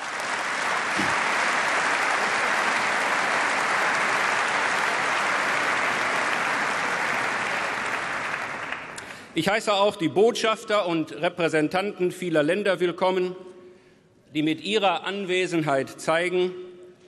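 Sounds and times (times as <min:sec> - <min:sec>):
crowd applauding: 0:00.0 - 0:09.4.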